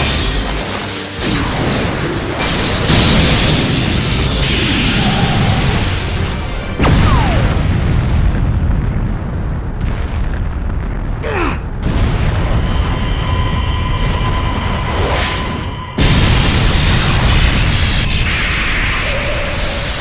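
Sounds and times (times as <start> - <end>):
dramatic music: 0.0 - 8.2
sudden blast: 1.2 - 19.1
deep booms and explosions: 1.2 - 20.0.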